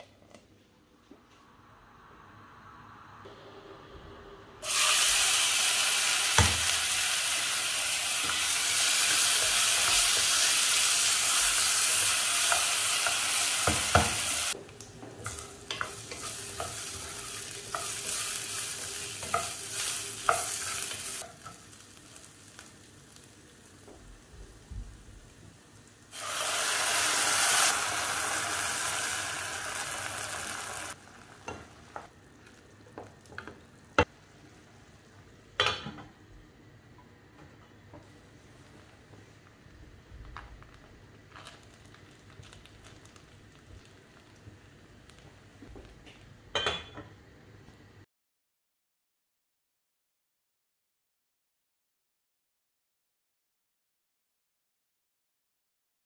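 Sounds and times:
rice sizzling in hot oil: 0:04.6 - 0:34.3.

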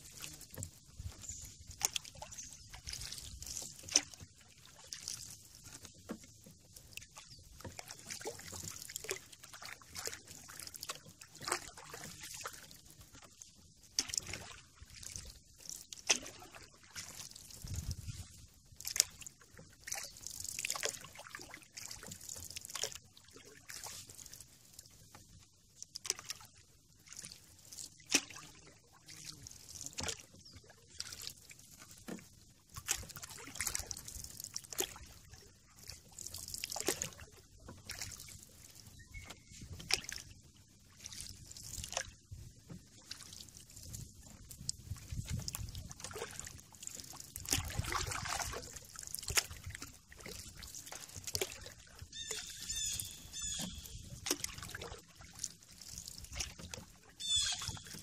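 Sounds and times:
water dripping off paddle: 0:00.0 - 0:18.2, 0:18.8 - 0:40.3, 0:41.1 - 0:58.0
paddle splashing in water: 0:00.0 - 0:58.0
bird chirping: 0:39.0 - 0:39.5, 0:52.2 - 0:53.9, 0:57.2 - 0:57.6.

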